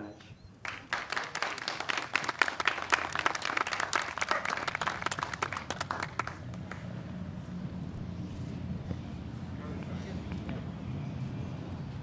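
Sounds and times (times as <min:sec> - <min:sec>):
audience applauding: 0:00.6 - 0:06.8.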